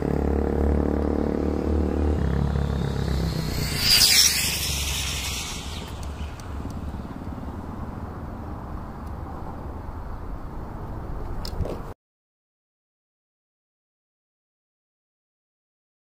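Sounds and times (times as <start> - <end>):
rc car motor whine: 1.6 - 7.8.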